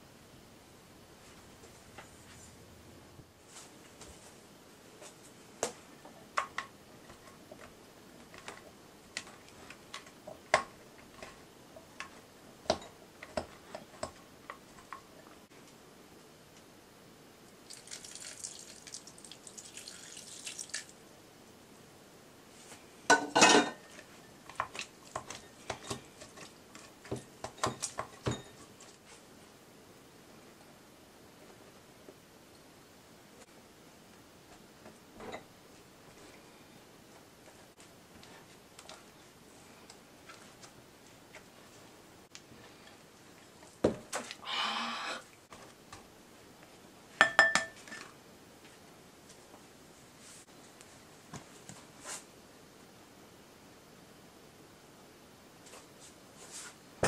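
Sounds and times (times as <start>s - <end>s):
water pouring: 17.6s - 21.0s.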